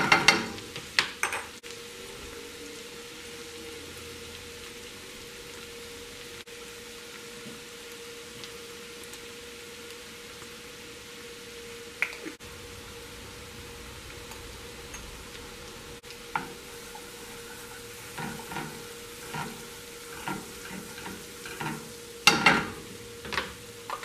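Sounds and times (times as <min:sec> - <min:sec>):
butter sizzling in a frying pan: 0:00.0 - 0:24.0
wooden spatula scraping pan: 0:16.3 - 0:23.5.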